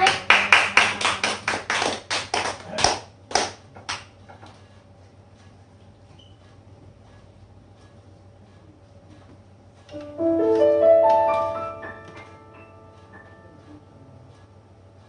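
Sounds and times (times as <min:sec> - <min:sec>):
small audience clapping: 0:00.0 - 0:04.6.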